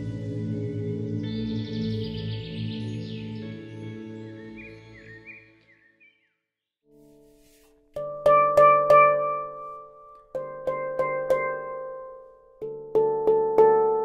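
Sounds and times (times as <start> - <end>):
handpan notes ringing: 7.4 - 14.0.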